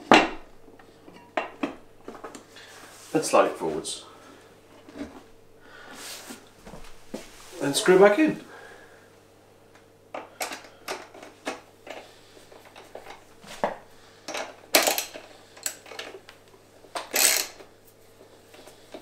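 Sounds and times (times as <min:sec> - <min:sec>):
loud metal tool clatter: 0:17.1 - 0:17.6.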